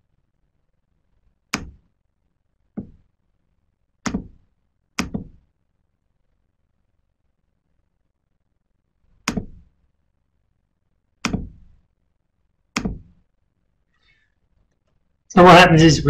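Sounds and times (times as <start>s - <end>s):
sharp knocks: 1.5s - 1.9s, 2.7s - 3.0s, 4.0s - 4.4s, 5.0s - 5.4s, 9.2s - 9.7s, 11.2s - 11.8s, 12.7s - 13.2s.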